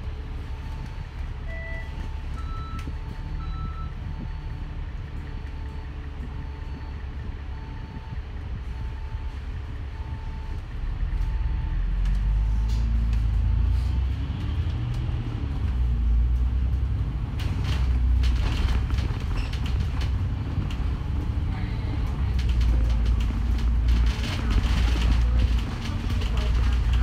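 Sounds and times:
bus body rattling and creaking: 0.0s - 27.0s
bus engine pulling away: 0.0s - 27.0s
short beeps: 1.5s - 4.5s.

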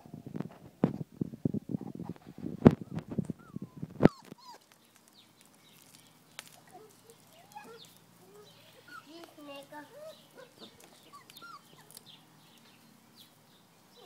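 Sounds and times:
close rustling and thumps: 0.3s - 4.4s
puppy whimpering: 2.7s - 4.8s, 6.6s - 12.2s.

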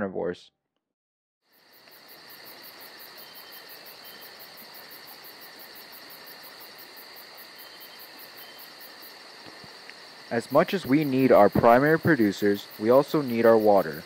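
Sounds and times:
crickets trilling: 1.4s - 14.0s.

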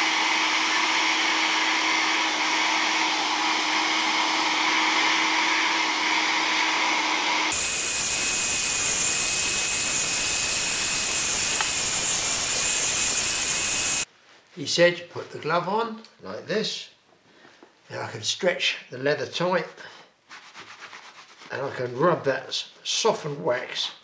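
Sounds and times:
hair dryer blowing: 0.0s - 14.1s.

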